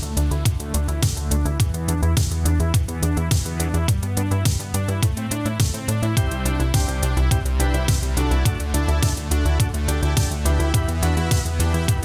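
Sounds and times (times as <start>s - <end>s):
deep bass line: 0.0s - 12.0s
electronic music: 0.0s - 12.0s
steady drum beat: 0.0s - 12.0s.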